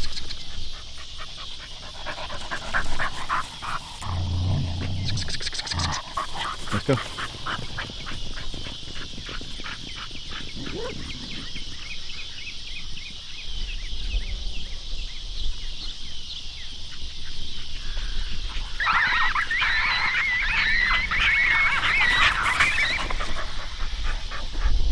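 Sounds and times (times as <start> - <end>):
dog panting: 0.5 - 11.6
high wavering animal calls: 0.8 - 12.4, 17.8 - 24.6.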